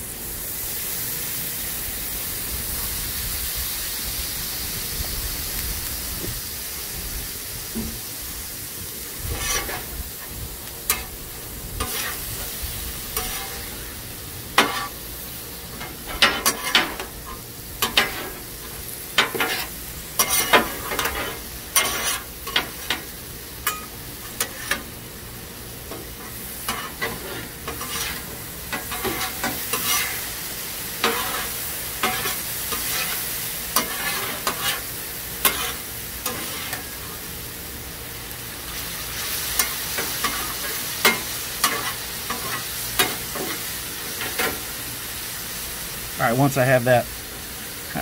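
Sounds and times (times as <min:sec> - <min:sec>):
meat sizzling: 0:00.0 - 0:48.0
metal spatulas clacking on griddle: 0:13.2 - 0:13.6, 0:14.6 - 0:14.9, 0:15.8 - 0:18.3, 0:19.2 - 0:24.8, 0:26.7 - 0:30.1, 0:31.0 - 0:33.2, 0:33.8 - 0:34.8, 0:35.4 - 0:36.9, 0:39.6 - 0:43.6.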